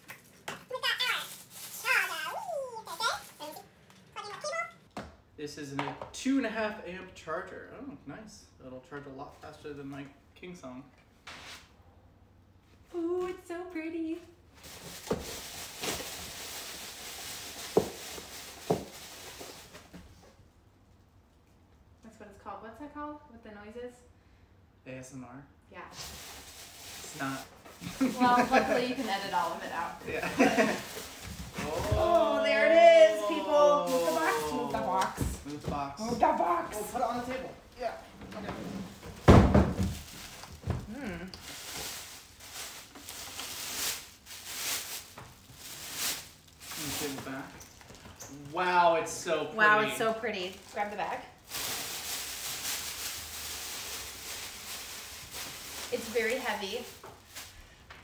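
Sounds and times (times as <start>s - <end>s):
plastic bag crinkling: 0.2s - 3.6s, 14.6s - 19.8s, 26.0s - 32.0s, 41.4s - 48.2s, 50.3s - 57.7s.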